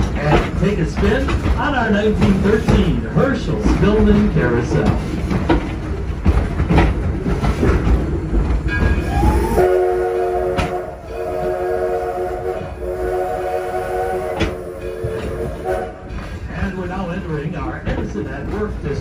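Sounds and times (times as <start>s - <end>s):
train rumbling and clattering: 0.0s - 19.0s
steam locomotive whistle: 9.0s - 16.1s.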